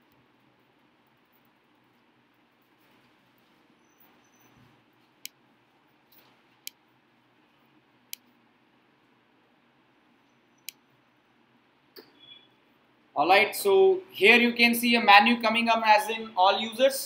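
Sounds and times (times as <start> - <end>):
faint room hiss: 0.0 - 17.0
computer mouse clicks: 8.1 - 8.3.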